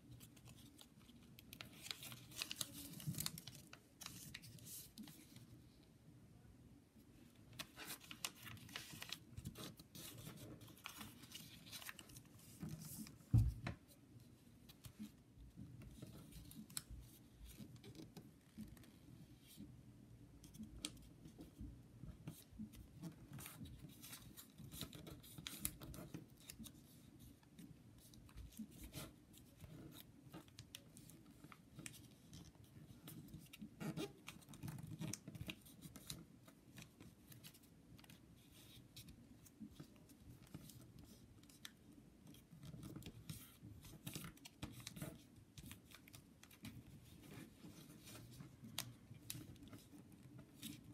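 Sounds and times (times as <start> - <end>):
paper being folded and creased: 0.1 - 5.7, 7.4 - 13.2, 15.8 - 19.6, 22.3 - 50.9
thump: 13.3 - 13.8.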